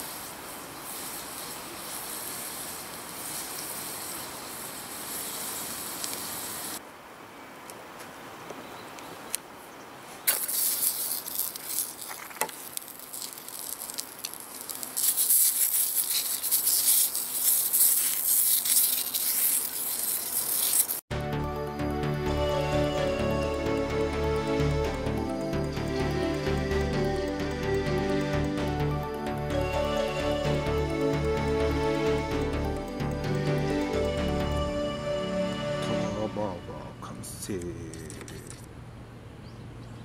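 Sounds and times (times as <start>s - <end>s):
food sizzling in oil: 0.0s - 6.8s, 10.3s - 21.1s
sausages frying with crackling pops: 0.0s - 6.8s, 10.2s - 21.1s.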